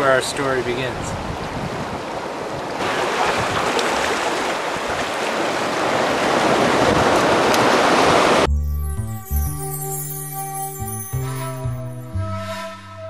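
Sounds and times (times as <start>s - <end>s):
surf washing over rocks: 1.5s - 8.5s
music: 8.5s - 13.0s.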